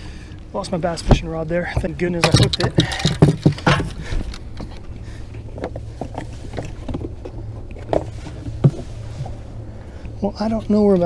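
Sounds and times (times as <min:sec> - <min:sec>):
boat motor humming: 0:00.0 - 0:11.0
gear knocking and clattering: 0:00.9 - 0:09.4.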